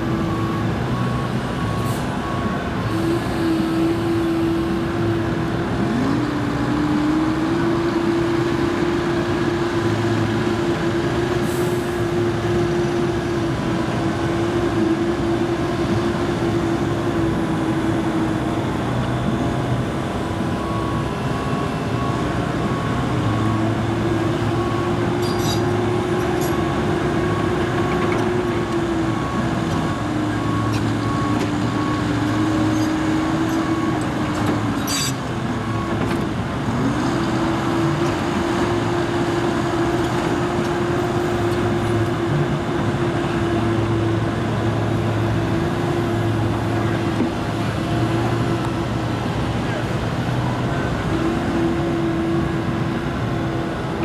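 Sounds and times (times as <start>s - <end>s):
excavator diesel engine under load: 0.0s - 54.0s
hydraulics working: 16.4s - 54.0s.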